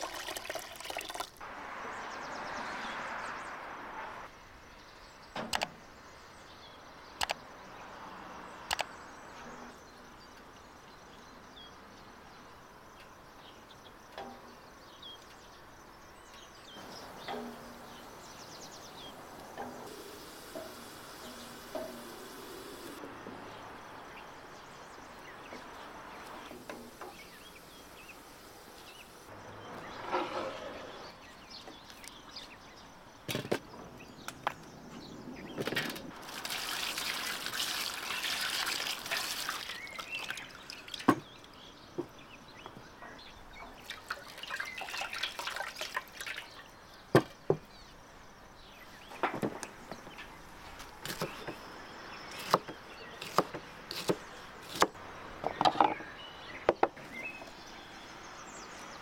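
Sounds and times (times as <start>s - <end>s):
water pouring into metal basin: 0.0s - 1.4s, 36.2s - 41.1s, 43.9s - 46.6s.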